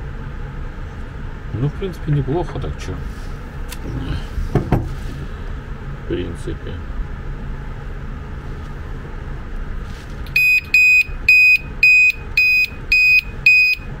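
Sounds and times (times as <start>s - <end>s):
reverse beeper beeping: 10.4s - 13.9s.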